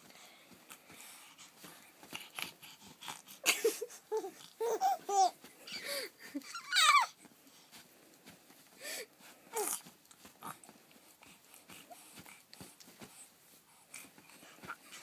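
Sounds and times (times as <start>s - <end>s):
baby giggling: 3.4s - 7.2s
baby squealing: 6.5s - 7.1s.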